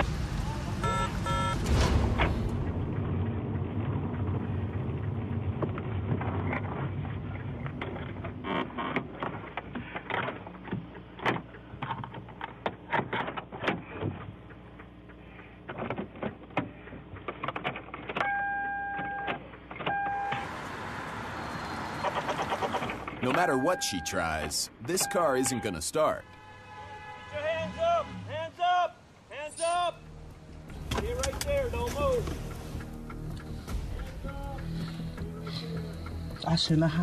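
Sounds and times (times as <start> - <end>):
low hum: 1.6 - 12.6
electronic warning chime: 19.9 - 20.4, 23.3 - 26.2.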